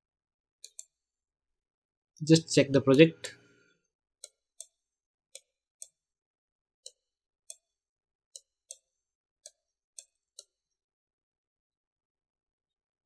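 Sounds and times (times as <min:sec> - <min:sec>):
computer mouse clicks: 0:00.6 - 0:01.0, 0:04.2 - 0:06.1, 0:06.8 - 0:10.6.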